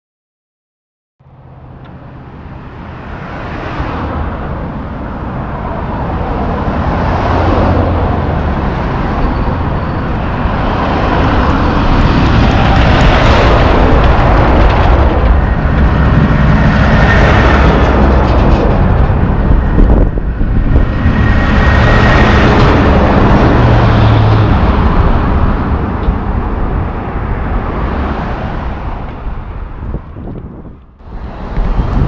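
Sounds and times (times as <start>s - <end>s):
cars passing: 1.2s - 32.0s
dump truck engine rumble: 1.2s - 32.0s.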